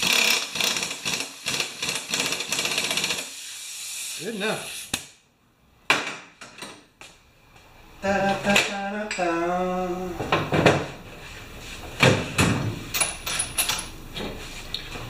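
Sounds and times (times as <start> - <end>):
man humming: 8.0 - 10.3.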